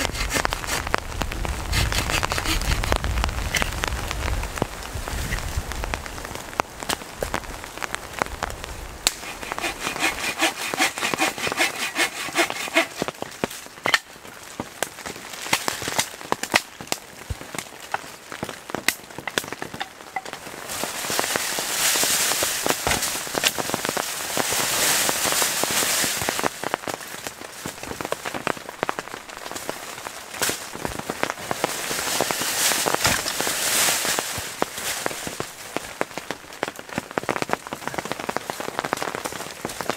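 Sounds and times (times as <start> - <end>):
knocks and scrapes: 0.0 - 3.9
rain pattering on plastic: 0.0 - 11.3, 13.0 - 39.9.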